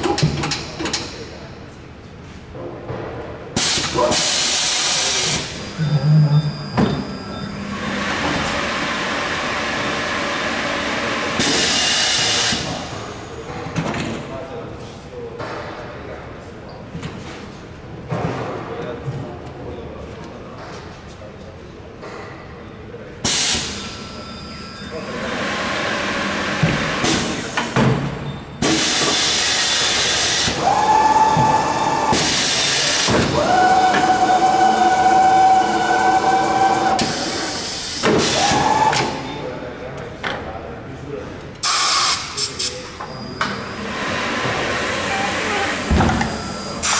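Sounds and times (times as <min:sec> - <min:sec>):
loud air hiss: 0:41.6 - 0:42.6.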